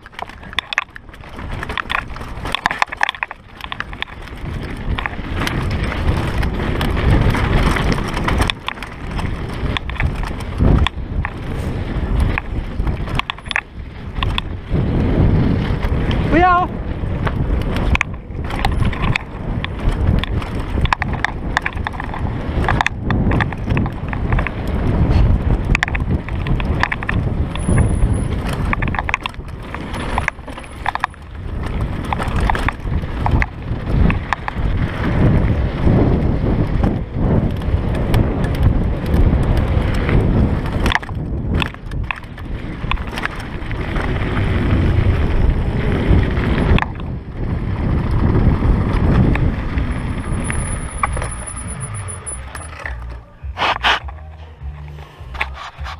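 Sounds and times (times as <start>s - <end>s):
bike rattling over bumps: 0.0s - 55.9s
tyres running over dirt: 0.0s - 55.9s
wind buffeting microphone: 0.0s - 55.9s.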